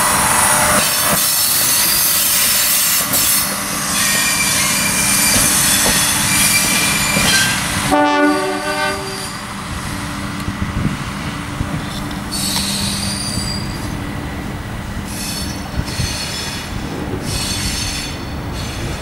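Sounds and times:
diesel railcar running past: 0.0s - 19.0s
high wheel squeal: 0.4s - 7.7s, 9.0s - 9.5s, 12.2s - 14.0s, 15.0s - 19.0s
train horn blast: 7.3s - 9.4s.

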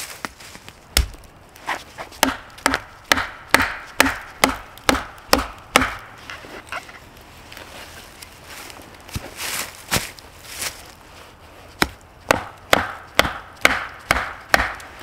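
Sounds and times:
tool striking wood: 1.0s - 1.2s, 2.2s - 6.2s, 11.8s - 14.9s.

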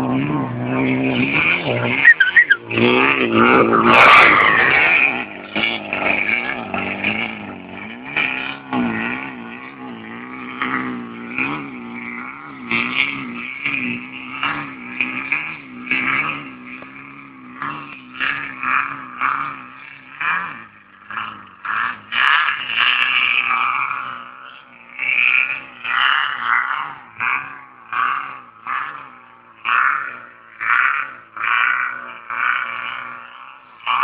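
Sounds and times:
off-road vehicle engine revving: 0.0s - 34.0s
rush of noise: 1.7s - 5.4s.

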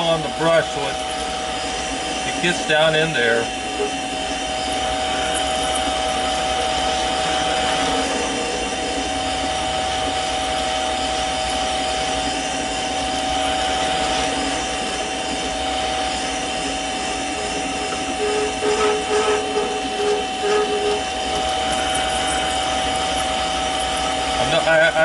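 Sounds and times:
lathe whine: 0.0s - 25.0s
blade scraping steel: 17.4s - 24.5s.

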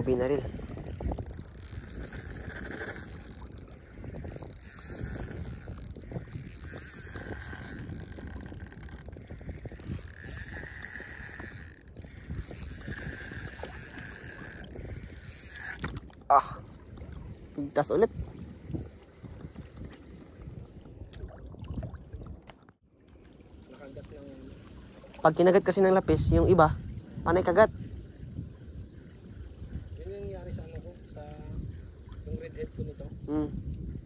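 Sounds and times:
fishing reel whirring: 0.0s - 16.2s.

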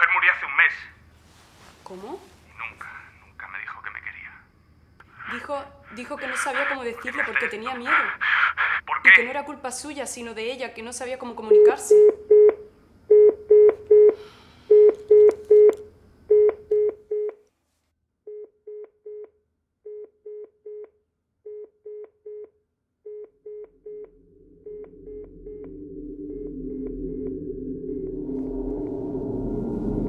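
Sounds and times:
telephone line beeps: 11.5s - 17.4s
low droning music: 23.5s - 30.0s.

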